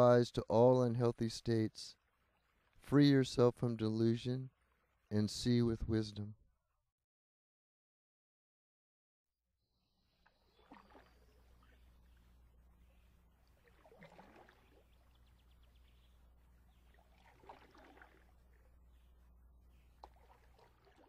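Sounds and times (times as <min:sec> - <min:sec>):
soft water splashes: 0:01.8 - 0:03.4, 0:04.4 - 0:05.2, 0:10.2 - 0:21.0
faint low hum: 0:09.9 - 0:21.0.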